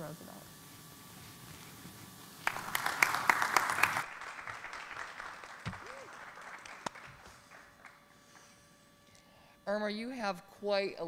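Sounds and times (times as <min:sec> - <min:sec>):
audience applauding: 0:02.4 - 0:08.0.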